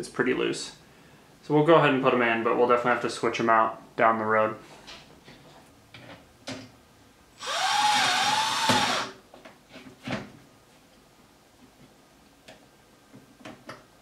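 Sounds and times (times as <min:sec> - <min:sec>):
cordless drill driving screw: 0:07.4 - 0:09.2.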